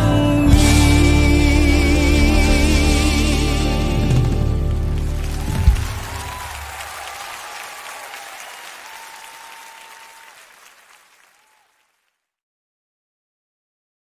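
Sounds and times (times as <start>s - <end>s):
audience applause: 4.1s - 12.1s.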